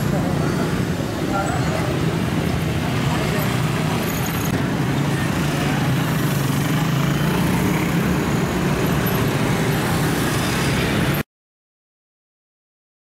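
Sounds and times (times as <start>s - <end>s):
motorcycles passing: 0.0s - 11.2s
road noise: 0.0s - 11.2s.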